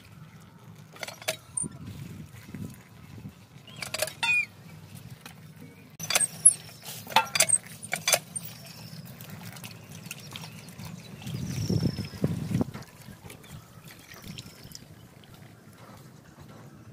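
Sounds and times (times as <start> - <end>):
steel bowl and plate clinking: 1.0 - 1.7, 3.7 - 4.5, 6.0 - 9.0.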